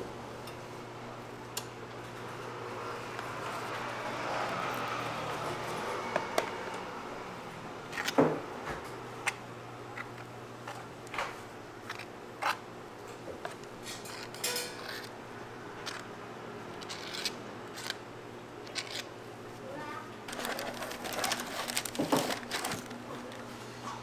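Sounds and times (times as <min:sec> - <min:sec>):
packaging rustle: 0:20.3 - 0:23.5.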